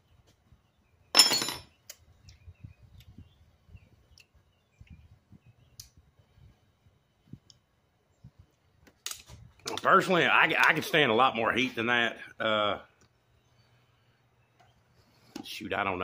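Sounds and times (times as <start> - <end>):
kitchenware clinking: 1.2 - 1.7.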